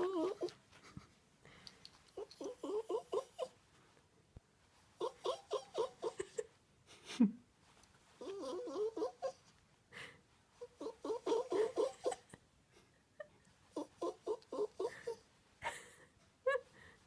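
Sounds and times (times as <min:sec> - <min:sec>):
puppy whining: 0:00.0 - 0:00.8, 0:02.0 - 0:03.6, 0:05.0 - 0:06.6, 0:08.2 - 0:09.5, 0:10.6 - 0:12.4, 0:13.7 - 0:15.3.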